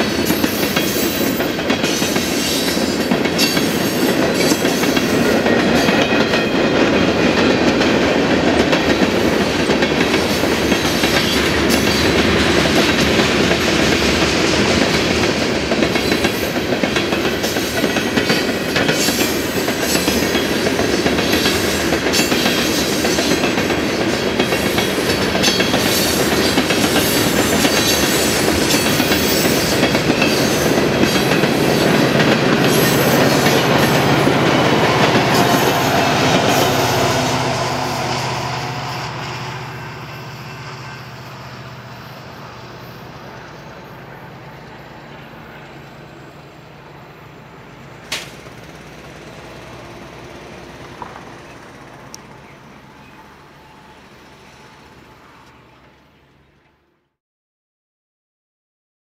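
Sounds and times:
train wheels rolling on rail: 0.0s - 56.8s
sharp click: 48.1s - 48.4s.

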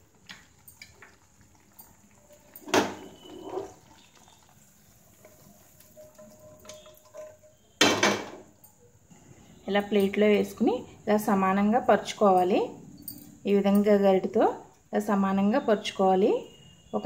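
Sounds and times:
metal cookware clattering: 0.2s - 3.9s, 5.4s - 8.8s.

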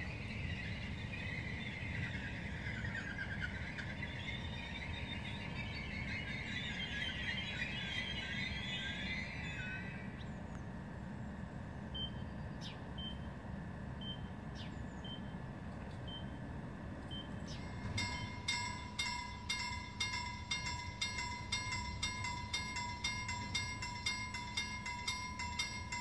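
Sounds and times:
level crossing bell ringing: 17.6s - 26.0s.

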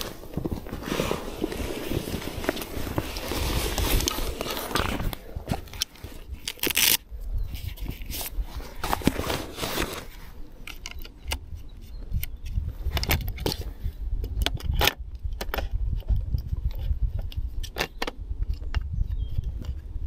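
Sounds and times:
camera and lens handling clicks: 2.4s - 9.2s, 10.6s - 13.6s.

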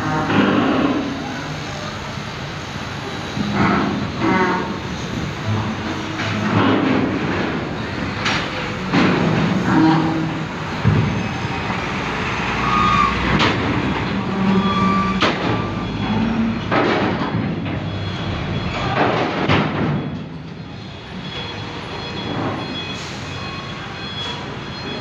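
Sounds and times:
truck diesel engine under load: 0.0s - 25.0s
clanks on steel ramp: 3.4s - 11.5s, 13.2s - 20.6s.

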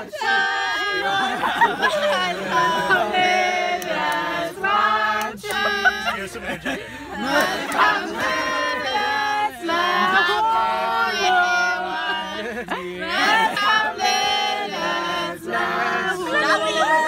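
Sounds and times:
group of people singing: 0.0s - 17.0s.

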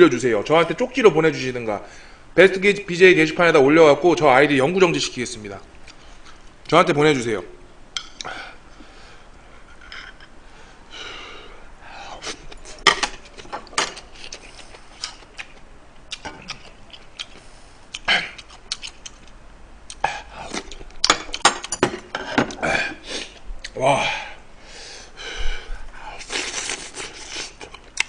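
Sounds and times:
man chewing and smacking: 12.2s - 21.8s, 26.2s - 28.0s.

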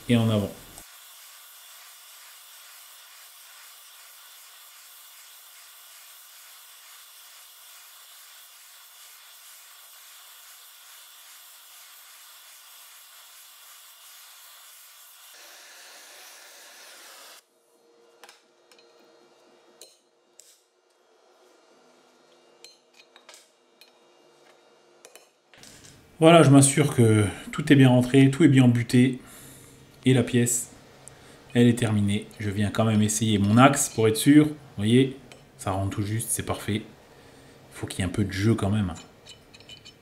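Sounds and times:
gas torch hissing: 0.0s - 17.4s.

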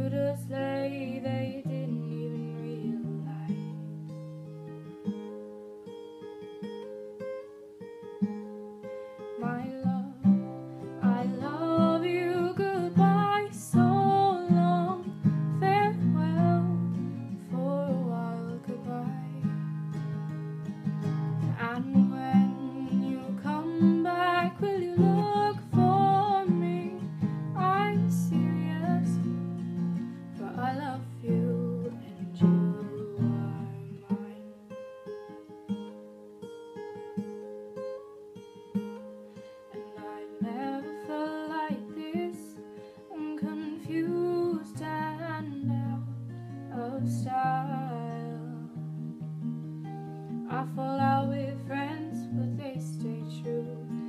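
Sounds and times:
woman singing: 0.0s - 3.8s, 9.4s - 19.8s, 21.4s - 34.6s, 39.8s - 49.1s, 50.3s - 54.0s
acoustic guitar: 0.0s - 54.0s.

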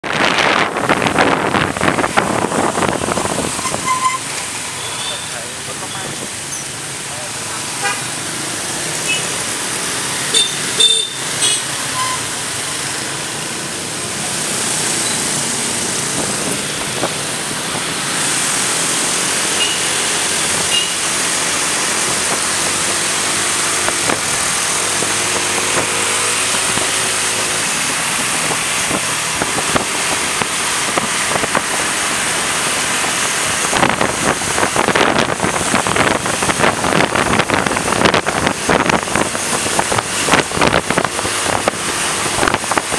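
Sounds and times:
wind rushing over microphone: 0.0s - 3.9s, 14.0s - 19.5s, 20.2s - 42.9s
motorbike traffic: 0.0s - 42.9s.

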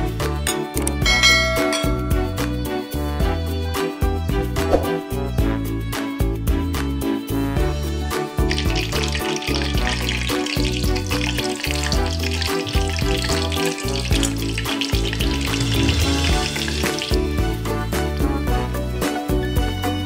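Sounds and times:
background music: 0.0s - 20.0s
hot oil sizzling and crackling: 8.4s - 18.1s.

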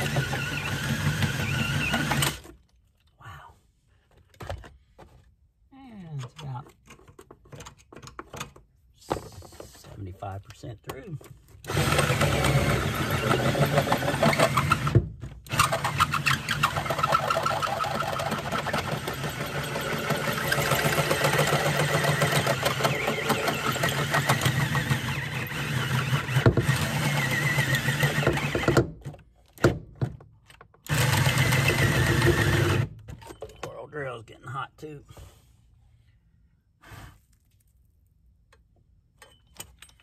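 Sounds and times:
cordless drill drilling through steel: 0.0s - 2.4s, 11.7s - 28.8s, 30.9s - 32.9s.

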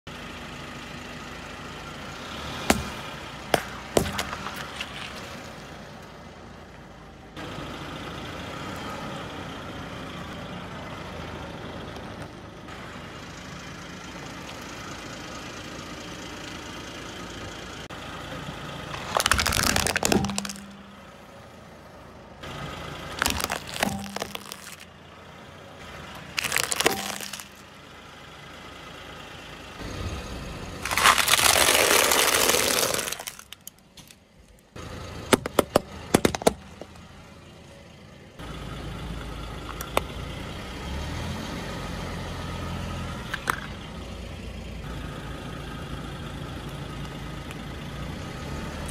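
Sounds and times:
engine and street hum: 0.0s - 48.9s
tyre crushing objects: 2.6s - 5.0s, 19.0s - 20.9s, 23.2s - 24.9s, 26.3s - 27.6s, 30.8s - 33.6s, 35.4s - 36.8s.

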